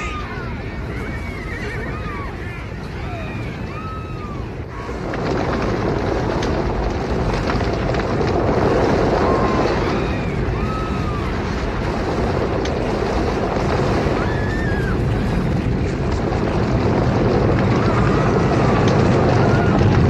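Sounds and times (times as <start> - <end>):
rumble of stampeding hooves: 0.0 - 20.0.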